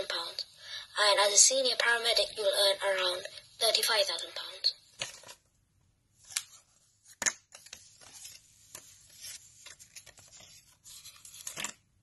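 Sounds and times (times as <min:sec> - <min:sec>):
paper banknotes rustling: 0:06.2 - 0:11.8.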